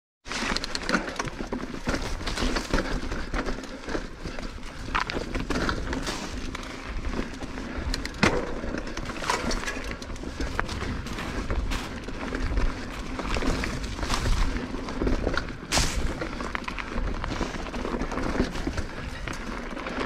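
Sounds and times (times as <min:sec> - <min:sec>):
bike knocks and rattles: 0:00.3 - 0:20.0
tyres crunching over dirt: 0:00.3 - 0:20.0
wind rumble on microphone: 0:04.2 - 0:20.0.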